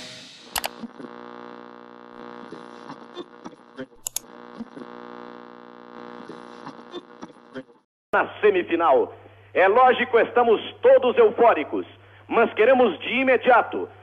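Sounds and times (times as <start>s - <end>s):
radio electrical hum: 0.4s - 14.0s
radio dial clicks and crackles: 0.6s - 7.8s.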